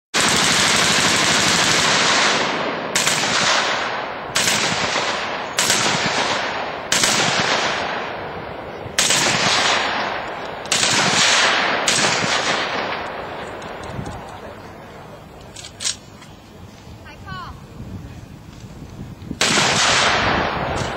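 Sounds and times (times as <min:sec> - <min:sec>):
machine gun bursts: 0:00.2 - 0:02.4.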